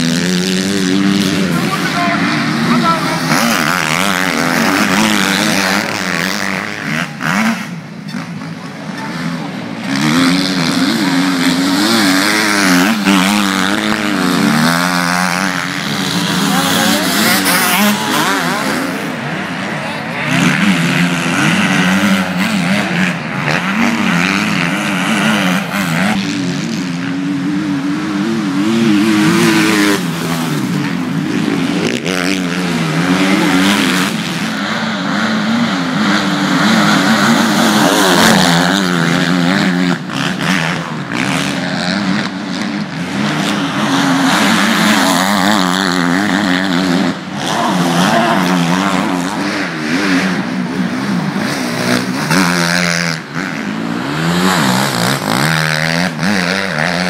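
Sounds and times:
motocross bikes revving: 0.0s - 57.0s.

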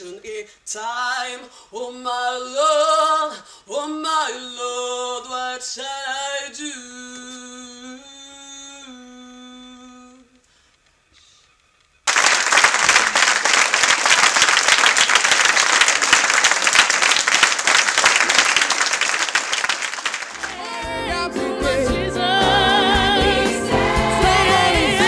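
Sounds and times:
woman singing a cappella: 0.0s - 10.4s, 20.5s - 25.0s
audience applauding: 12.1s - 21.1s.

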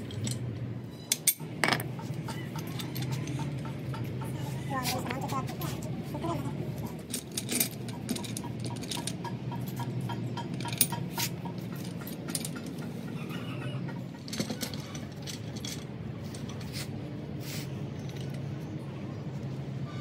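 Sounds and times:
metal tools clinking: 0.0s - 3.7s, 6.7s - 12.9s, 14.1s - 17.0s, 17.9s - 18.6s.

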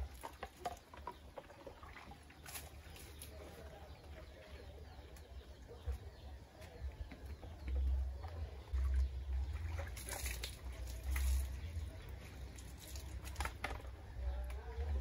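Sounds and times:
water splashing from a dipper: 8.2s - 14.0s.

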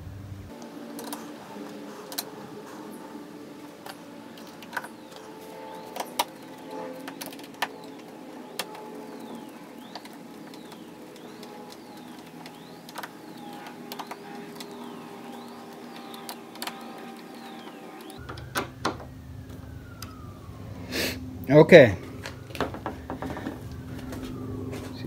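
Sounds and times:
faint background whir: 0.0s - 25.0s
low hum: 0.0s - 25.0s
hex driver clicking: 0.5s - 18.5s.

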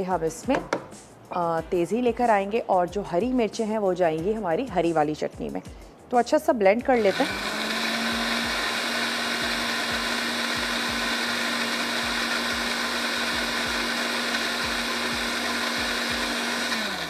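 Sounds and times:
electric blender running: 7.0s - 17.0s.

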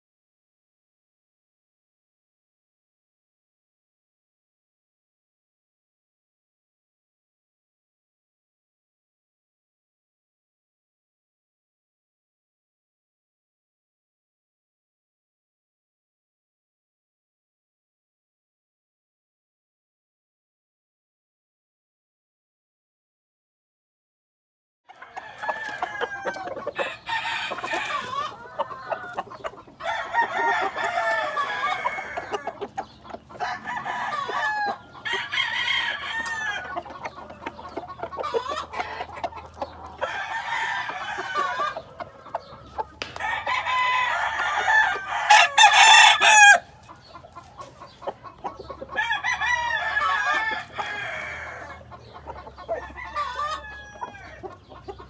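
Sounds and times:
roosters crowing: 24.9s - 55.0s.

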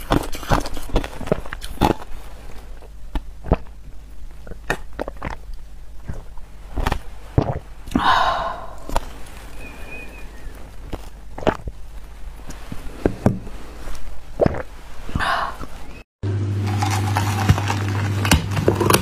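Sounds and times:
person slurping ice through straw: 0.0s - 2.8s, 4.4s - 10.3s, 12.5s - 15.8s, 16.7s - 19.0s
small wet mouth clicks: 14.4s - 14.7s.

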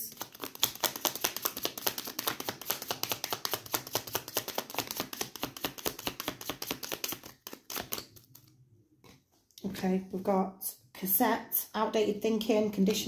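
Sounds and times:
cards being shuffled: 0.1s - 8.6s.

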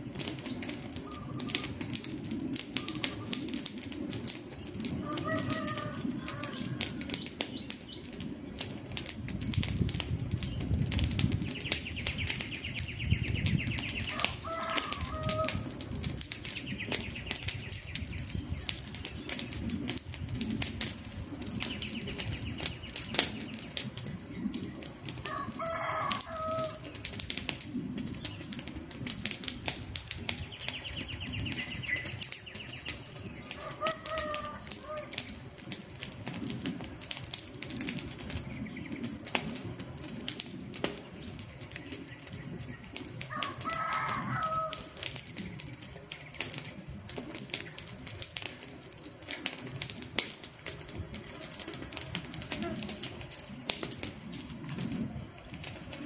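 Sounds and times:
campfire crackling and popping: 0.0s - 56.0s
bird calling: 1.0s - 1.9s, 5.0s - 8.1s, 11.5s - 15.7s, 30.5s - 35.4s.

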